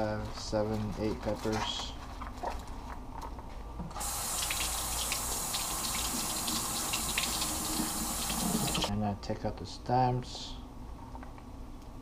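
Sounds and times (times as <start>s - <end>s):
faucet water running: 3.9s - 8.9s.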